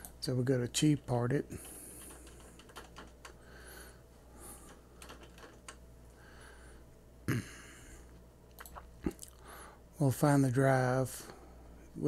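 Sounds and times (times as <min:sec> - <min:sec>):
keyboard keystrokes: 0:02.0 - 0:03.4, 0:05.0 - 0:05.8.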